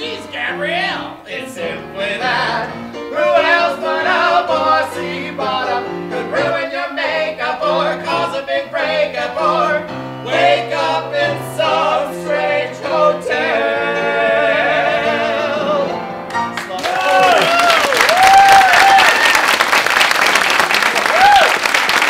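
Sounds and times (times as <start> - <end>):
two men singing a duet: 0.0 - 16.0.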